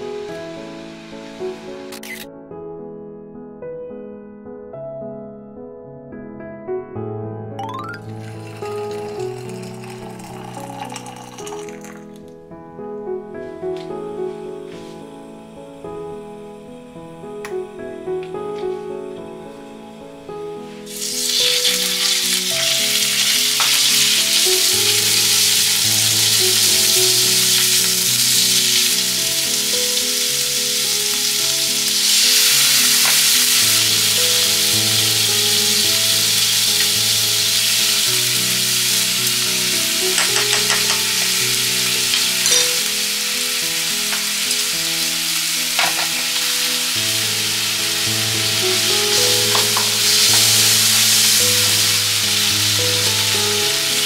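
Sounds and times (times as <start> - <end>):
food sizzling in frying pan: 0.0 - 2.2, 7.7 - 12.2, 20.7 - 54.0.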